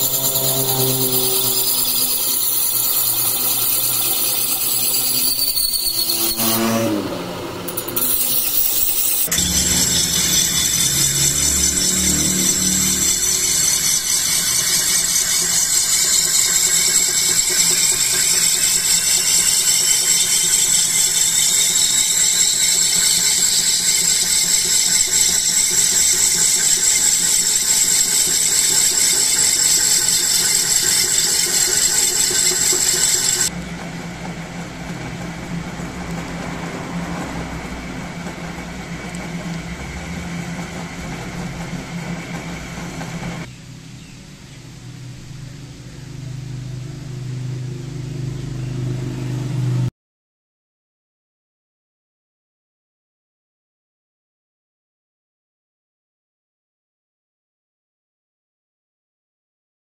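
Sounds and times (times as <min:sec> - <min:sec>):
electric motor humming: 0:00.0 - 0:33.5
metal blade squealing on grinding disc: 0:00.0 - 0:33.5.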